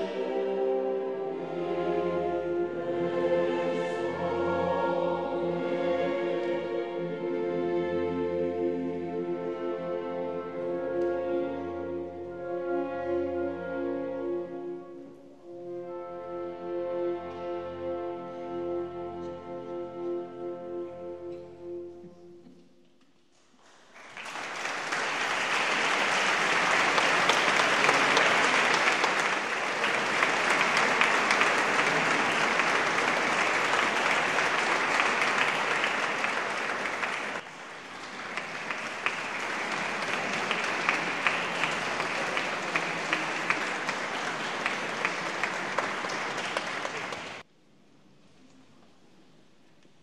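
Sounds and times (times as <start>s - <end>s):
audience applauding: 23.6s - 47.4s.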